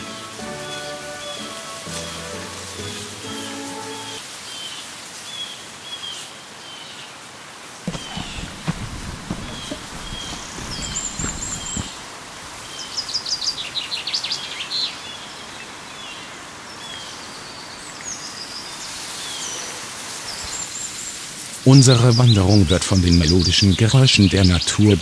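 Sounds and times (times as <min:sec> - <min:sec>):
small river rushing: 0:07.2 - 0:21.6
small songbirds chirping: 0:07.9 - 0:25.0.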